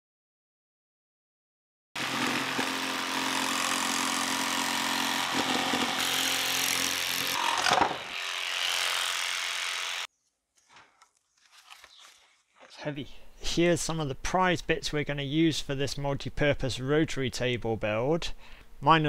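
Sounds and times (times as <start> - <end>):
power tool cutting plastic: 2.0 - 10.1.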